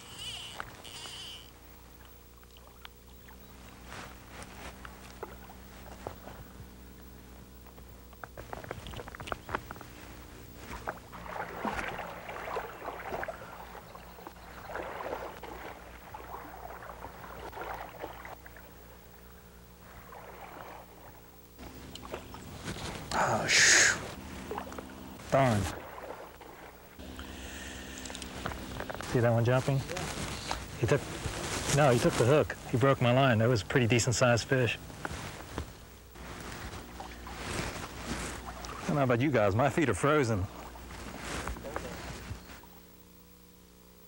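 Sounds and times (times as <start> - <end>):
steady low hum: 0.0 - 44.0
river water splashing: 10.1 - 33.0, 36.0 - 42.8.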